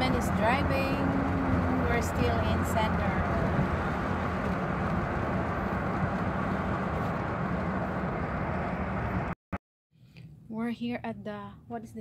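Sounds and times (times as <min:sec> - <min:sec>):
car road and engine noise: 0:00.0 - 0:09.4.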